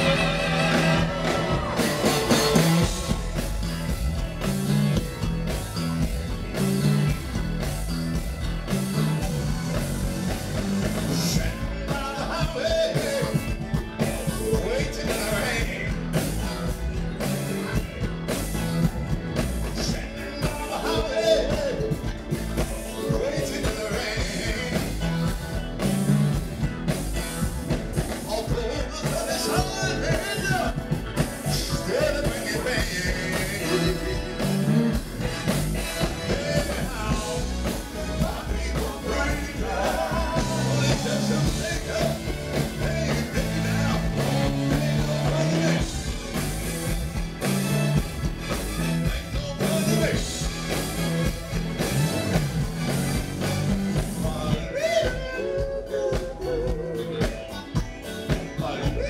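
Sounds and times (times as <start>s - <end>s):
drums: 0.0s - 59.0s
electric bass line: 0.0s - 59.0s
keyboards: 0.0s - 59.0s
person singing: 11.0s - 17.9s, 19.8s - 22.1s, 28.2s - 35.0s, 36.0s - 46.3s, 54.0s - 57.8s.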